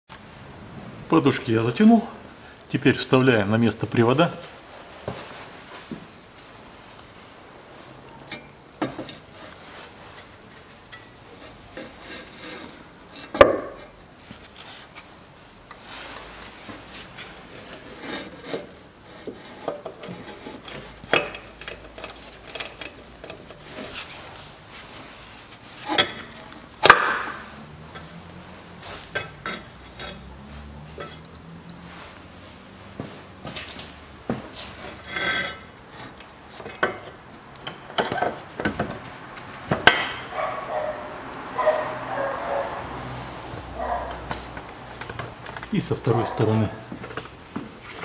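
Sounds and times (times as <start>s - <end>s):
metal knocks and clunks: 36.6s - 40.3s.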